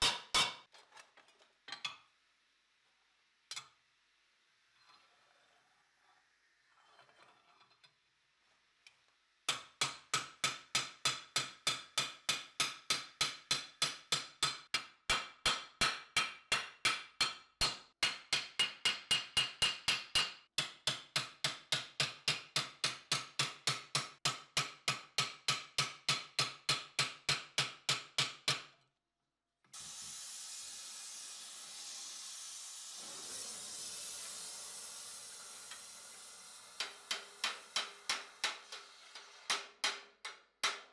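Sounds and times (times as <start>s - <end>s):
hammer striking steel plate: 0.0s - 0.7s, 9.5s - 28.7s, 35.4s - 40.9s
gas torch flame hissing: 29.7s - 39.5s.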